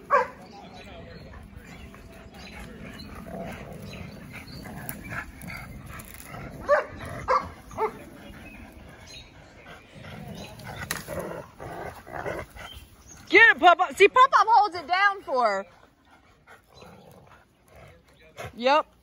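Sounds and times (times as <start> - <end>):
dogs tugging a branch: 0.0 - 19.0
dog barking: 0.1 - 0.4, 6.6 - 8.0.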